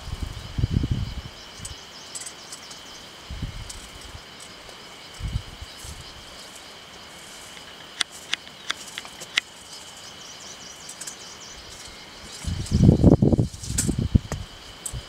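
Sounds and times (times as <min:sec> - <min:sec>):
high-pitched insect drone: 0:00.0 - 0:15.0
sharp clicks: 0:07.6 - 0:09.5.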